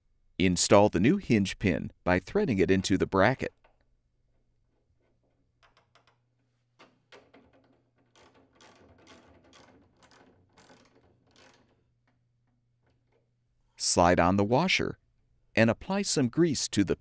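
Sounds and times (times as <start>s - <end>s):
metallic clicking and scraping: 3.5s - 13.4s.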